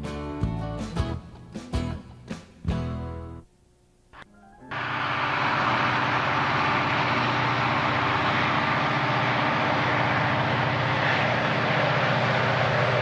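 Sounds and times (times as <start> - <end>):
diesel locomotive engines droning: 4.3 - 13.0.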